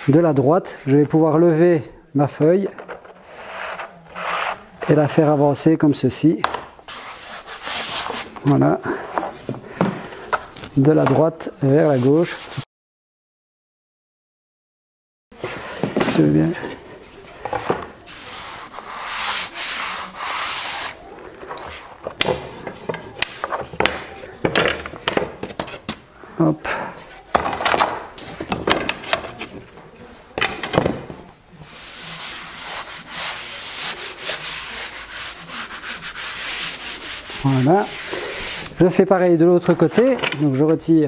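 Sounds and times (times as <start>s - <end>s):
hand rubbing veneer: 3.3s - 5.4s, 6.9s - 8.4s, 18.1s - 21.1s, 31.6s - 38.8s
veneer sheet brushing over panel: 6.9s - 8.4s, 18.0s - 21.1s, 31.6s - 38.8s.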